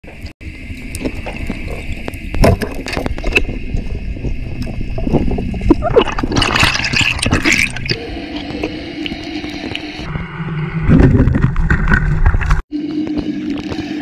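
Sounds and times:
muffled underwater hiss: 0.1 - 6.2, 7.2 - 10.8, 12.8 - 14.0
gurgling and rattling: 0.8 - 10.1.

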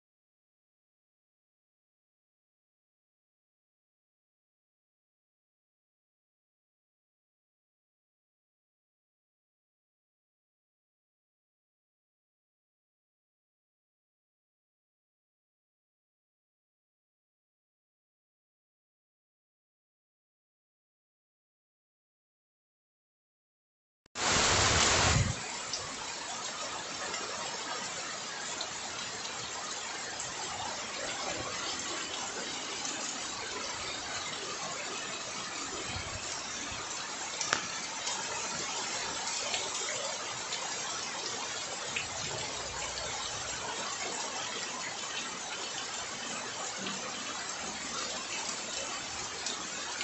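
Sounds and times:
floodwater rushing: 24.2 - 50.0.

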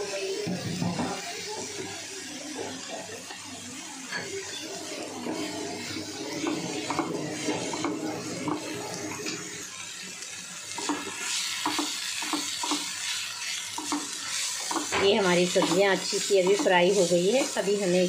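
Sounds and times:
vegetables sizzling in a frying pan: 0.0 - 18.0
spatula scraping a pan: 4.1 - 9.6.

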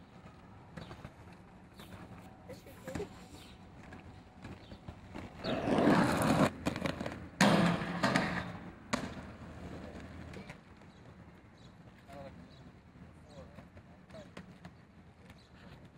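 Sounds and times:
inline skates rolling on pavement: 0.0 - 15.9
skate scraping along metal bar: 5.3 - 10.2
skate landing clack: 6.1 - 10.6
skate hitting metal rail: 7.4 - 9.4.

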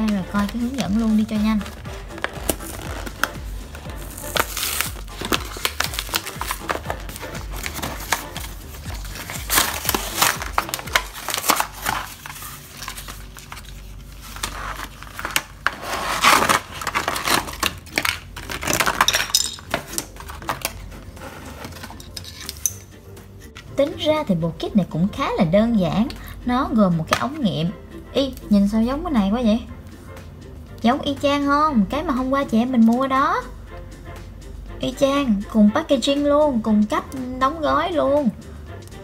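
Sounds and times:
plastic packaging crackling: 0.0 - 22.5.

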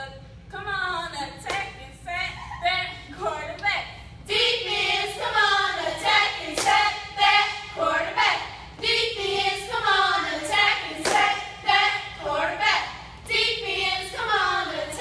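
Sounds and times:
sharp claps or stomps: 11.0 - 11.4.

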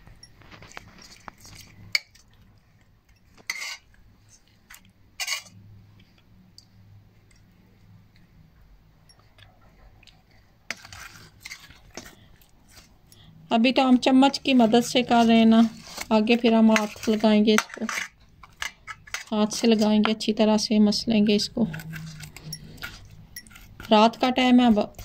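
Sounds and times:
metal spoon clinking on steel: 21.7 - 24.0.

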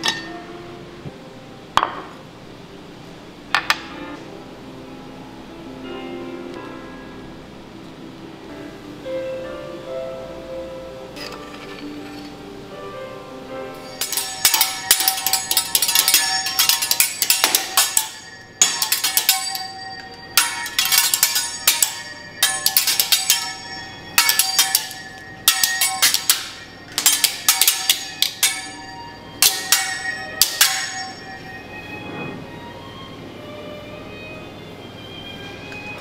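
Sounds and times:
steel utensils clanging on griddle: 0.0 - 0.4, 11.2 - 12.4, 13.7 - 32.0.

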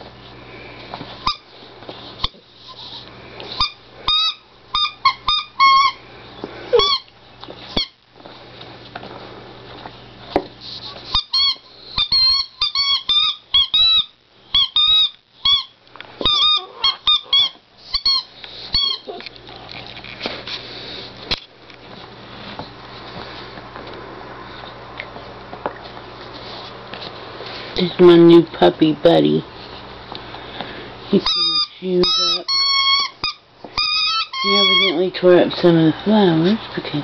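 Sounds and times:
squeaky toy squeaks: 3.6 - 6.0, 6.7 - 7.1, 7.7 - 8.0, 11.1 - 19.2, 31.2 - 35.1.

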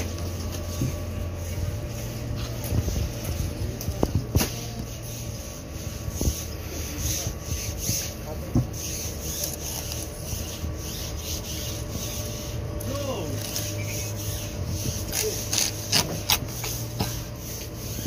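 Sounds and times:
machete scraping along fish: 4.4 - 12.5, 13.2 - 18.0.

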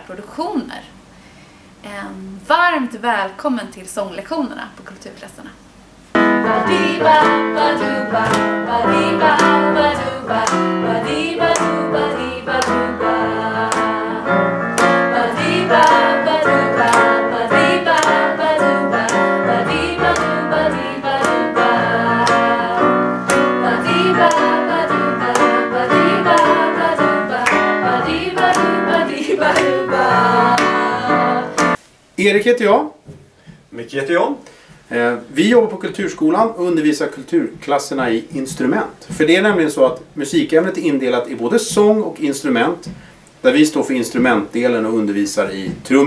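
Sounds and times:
digital piano: 6.1 - 31.8
steady beat of sharp strikes: 6.2 - 31.8
young voices singing: 6.2 - 31.8.

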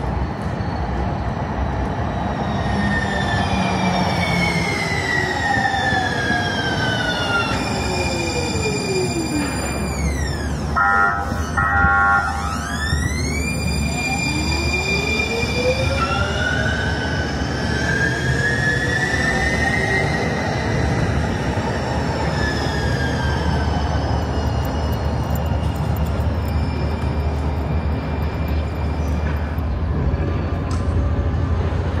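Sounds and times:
tram inverter whine: 0.0 - 32.0
tram horn blasts: 10.7 - 12.5.

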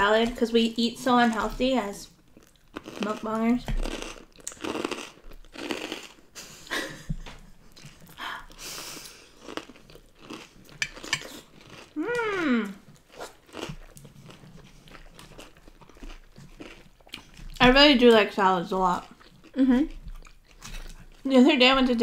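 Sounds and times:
chewing and crunching salad: 0.0 - 22.0
person humming mm: 12.0 - 12.8.

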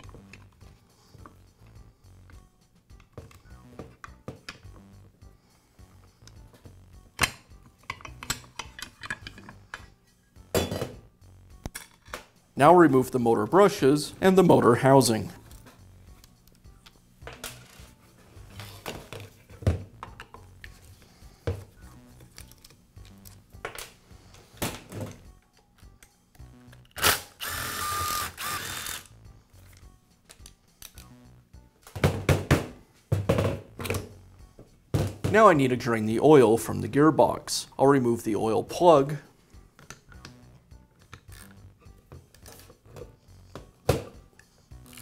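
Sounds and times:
cordless screwdriver whining: 27.0 - 29.2.

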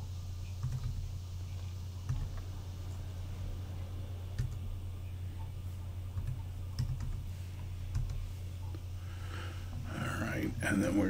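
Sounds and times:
steady low hum: 0.0 - 11.0
keyboard key presses: 6.2 - 7.2.

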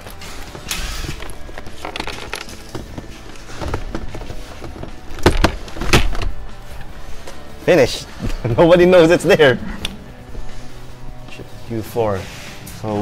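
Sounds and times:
plastic clicks and rattles: 0.7 - 6.3.

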